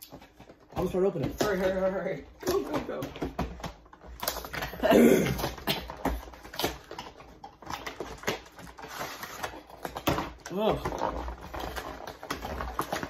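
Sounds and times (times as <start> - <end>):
cardboard boxes being opened: 0.0 - 13.0.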